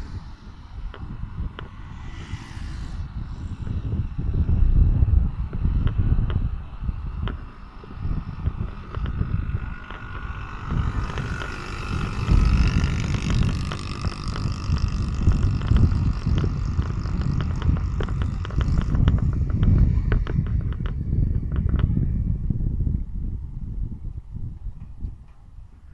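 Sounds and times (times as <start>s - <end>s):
engine whine rising: 0.0s - 21.6s
wind buffeting microphone: 0.0s - 25.9s
rapid clicks and rattles: 8.4s - 21.8s.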